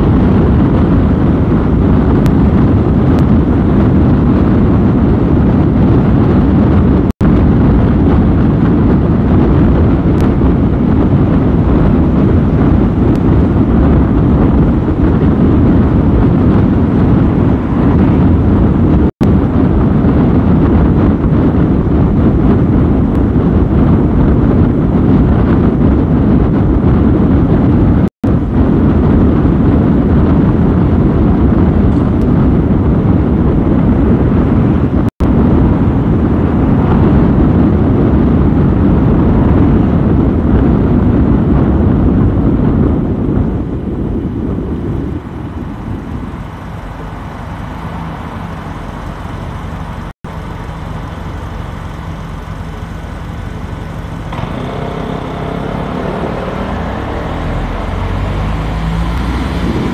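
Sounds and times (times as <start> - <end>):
car road and wind noise: 0.0 - 59.9.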